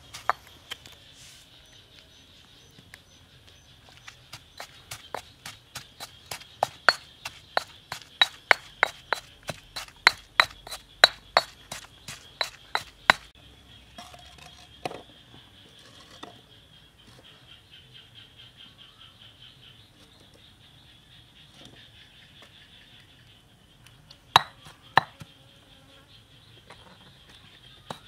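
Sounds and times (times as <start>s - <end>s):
stone pestle pounding in mortar: 4.3s - 13.3s, 24.4s - 25.2s.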